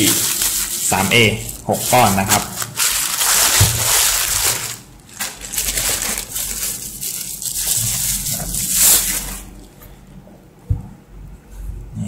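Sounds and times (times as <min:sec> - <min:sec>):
bubble wrap crinkling: 0:00.0 - 0:09.8.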